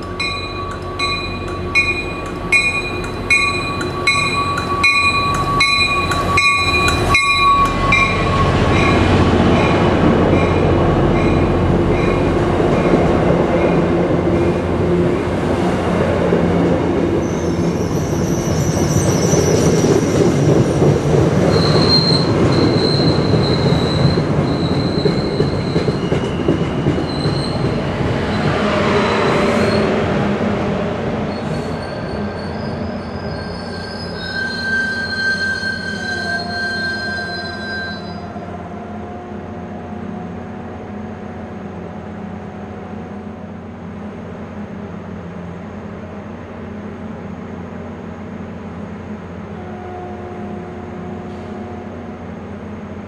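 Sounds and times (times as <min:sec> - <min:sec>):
train wheels squealing on rails: 0:00.0 - 0:14.6, 0:17.0 - 0:30.2, 0:31.2 - 0:40.5, 0:49.4 - 0:52.3
standing train low hum: 0:00.0 - 0:53.0
train rolling rumble: 0:00.0 - 0:53.0.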